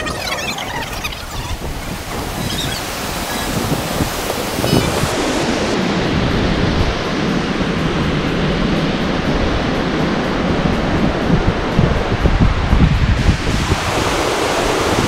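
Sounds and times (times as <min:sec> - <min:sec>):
river rushing over rocks: 0:00.0 - 0:08.2, 0:13.3 - 0:15.0.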